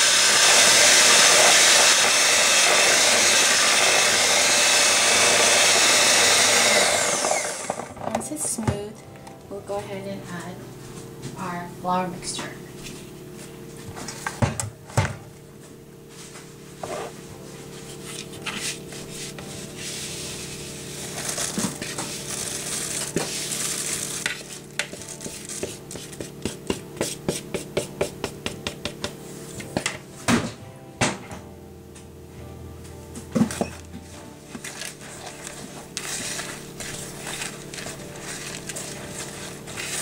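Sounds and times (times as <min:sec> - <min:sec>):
flour and oats pouring: 0:20.5 - 0:25.5.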